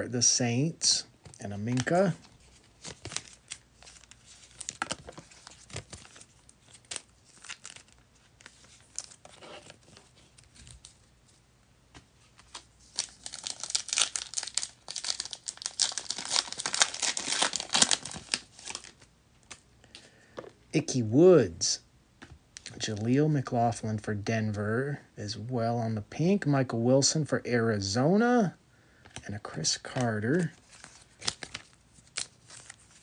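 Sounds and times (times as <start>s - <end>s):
foil wrapper crinkling and tearing: 2.8s - 9.3s, 12.9s - 19.0s, 29.9s - 33.0s.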